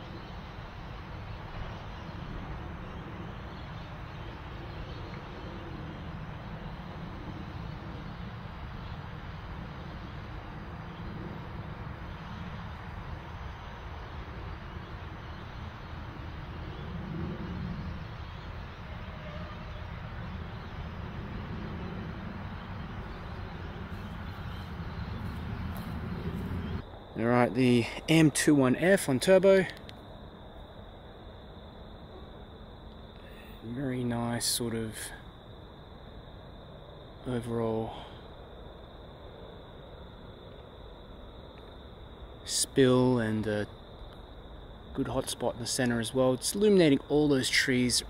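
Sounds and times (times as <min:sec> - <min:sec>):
outdoor background noise: 0:00.0 - 0:48.0
low rumble: 0:16.0 - 0:27.2.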